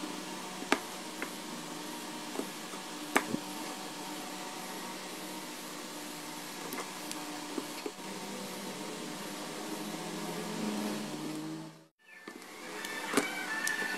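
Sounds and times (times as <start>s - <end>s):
steady background hum: 0.0s - 13.9s.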